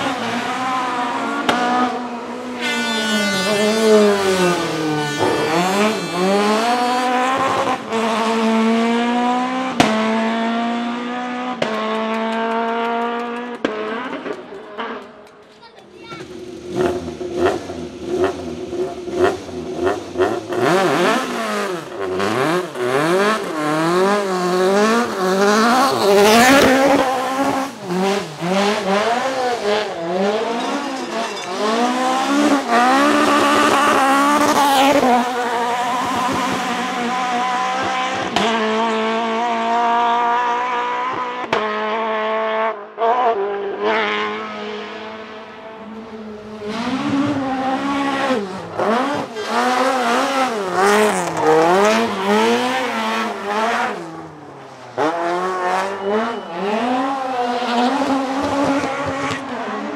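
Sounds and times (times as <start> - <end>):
rally car engine revving: 0.0 - 15.5, 16.1 - 59.9
tyre squeal: 2.6 - 6.9, 30.3 - 33.2, 55.6 - 58.0.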